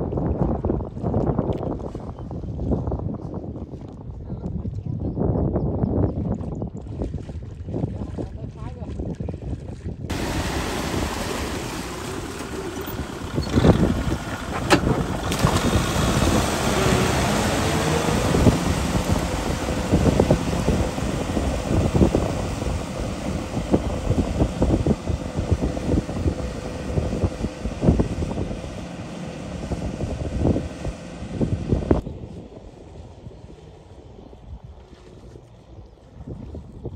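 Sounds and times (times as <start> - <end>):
wind buffeting microphone: 0.0 - 36.9
tiller churning water and mud: 6.1 - 36.9
tractor engine running: 10.1 - 32.0.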